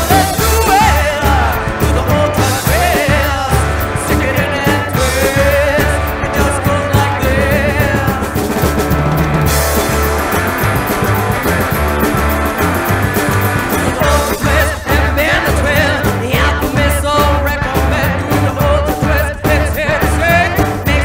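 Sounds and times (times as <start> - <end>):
woman singing with vibrato: 0.0 - 8.3, 13.9 - 21.0
rockabilly band playing: 0.0 - 21.0.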